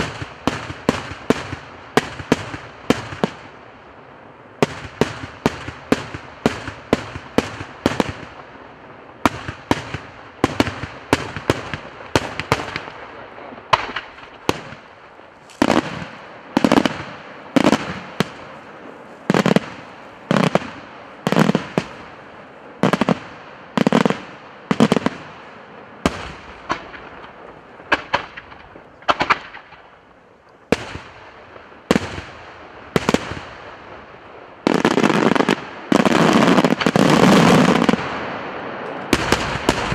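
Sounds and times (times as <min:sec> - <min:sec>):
firework shells bursting: 0:09.2 - 0:22.1, 0:26.1 - 0:30.0, 0:38.9 - 0:39.9.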